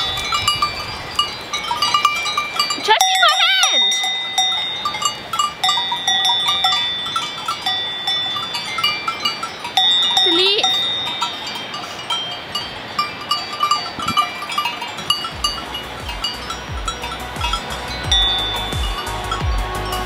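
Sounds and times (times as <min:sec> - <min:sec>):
goat bells clanking: 0:00.0 - 0:20.0.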